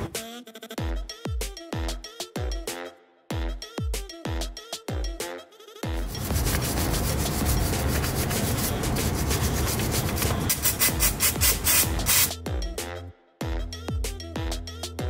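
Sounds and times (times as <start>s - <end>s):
wire brush scrubbing metal: 6.0s - 12.3s.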